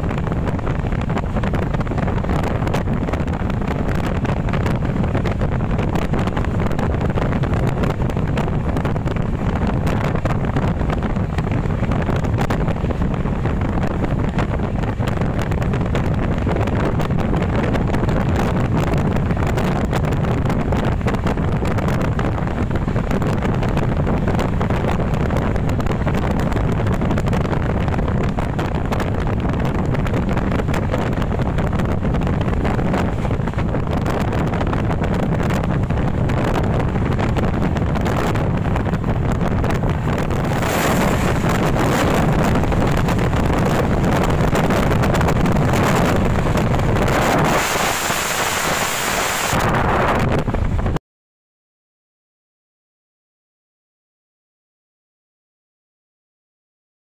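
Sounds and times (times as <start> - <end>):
train wheels rumbling on rails: 0.0 - 48.9
wind buffeting microphone: 0.0 - 51.0
passing goods train: 30.6 - 31.4, 32.3 - 34.0, 39.8 - 46.9.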